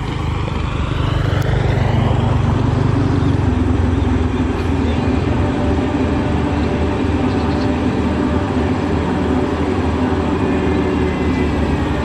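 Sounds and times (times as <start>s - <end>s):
roller compactor diesel engine running: 0.0s - 12.0s.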